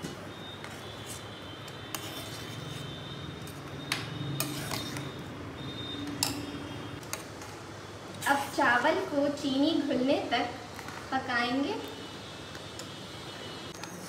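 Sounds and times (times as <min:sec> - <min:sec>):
metal spoon stirring thick pudding: 0:01.1 - 0:03.6, 0:04.3 - 0:05.2.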